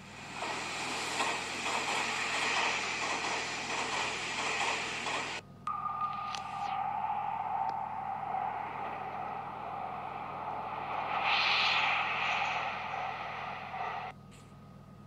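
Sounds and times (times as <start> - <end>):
electric train passing at speed: 0.0 - 14.1.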